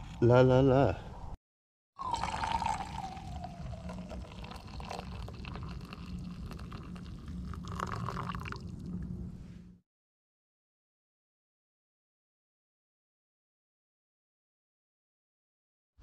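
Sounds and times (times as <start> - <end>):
coffee pouring into metal mug: 2.0 - 8.8.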